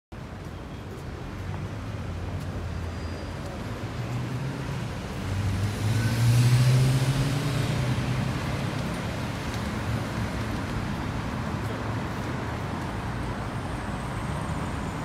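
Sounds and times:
vehicle engine humming passing: 5.2 - 9.5.

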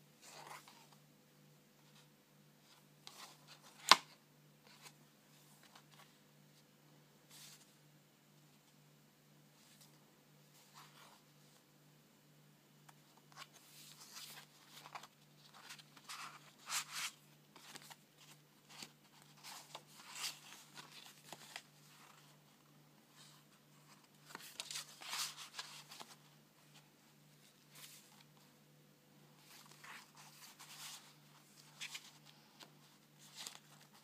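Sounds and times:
paper pages turning: 0.2 - 1.0, 2.7 - 5.0, 13.0 - 22.4, 23.1 - 26.8, 29.4 - 34.0.

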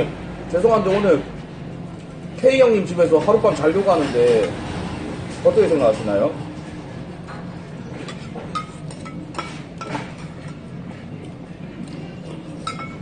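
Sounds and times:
metal spoons clinking on bowls: 8.1 - 10.7, 12.5 - 13.0.

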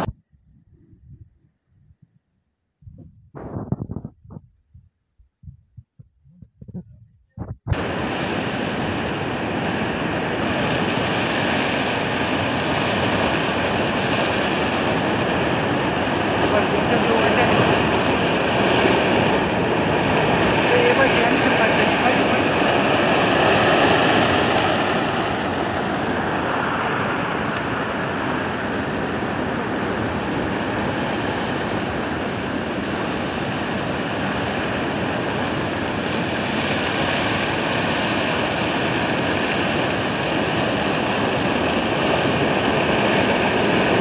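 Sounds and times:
mudflow rushing down gorge: 7.8 - 28.7.

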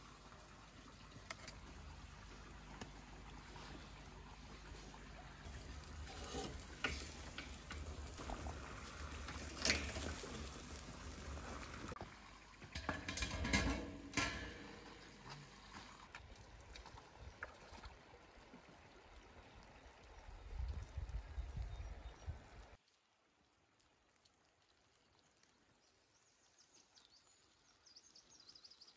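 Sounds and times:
fish sizzling over hot coals: 1.2 - 16.0.

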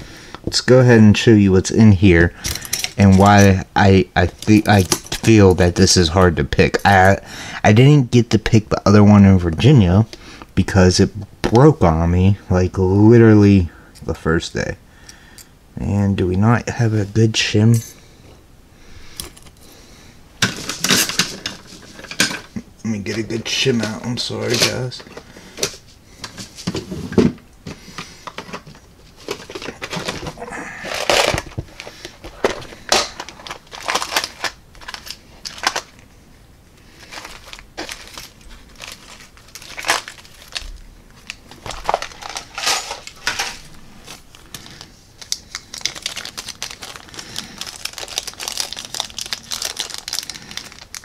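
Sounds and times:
plastic parts box rummaging: 2.4 - 3.5, 4.2 - 6.0, 20.4 - 22.5, 28.2 - 36.0, 37.0 - 51.0.

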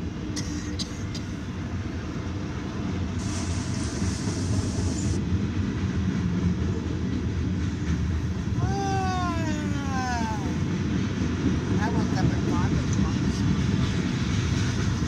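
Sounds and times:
train wheels rumbling on rail: 0.0 - 15.0
hiss: 3.2 - 5.2.

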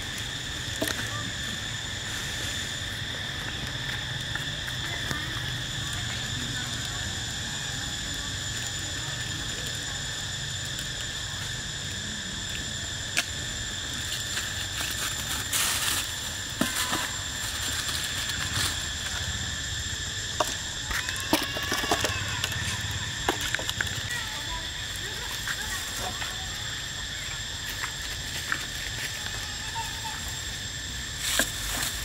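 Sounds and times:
high-pitched insect drone: 0.0 - 32.0
monkeys scuffling in dry leaves: 13.4 - 19.8, 20.5 - 32.0.

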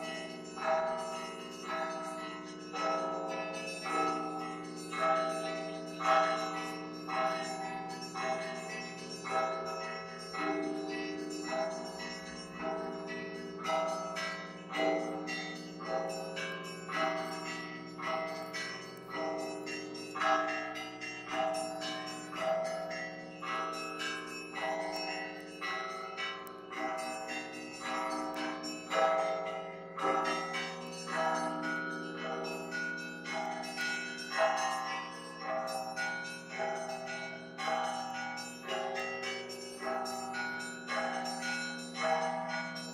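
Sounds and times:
church bells ringing: 0.0 - 42.9
low hum of large bell: 0.0 - 42.9.

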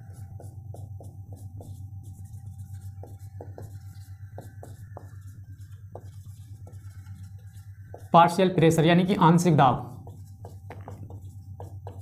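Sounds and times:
marker writing on whiteboard: 0.0 - 12.0
steady low hum: 0.0 - 12.0.

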